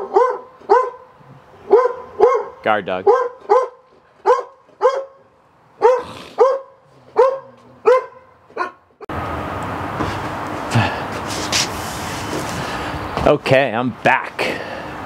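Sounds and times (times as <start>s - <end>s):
dog barking: 0.0s - 8.8s.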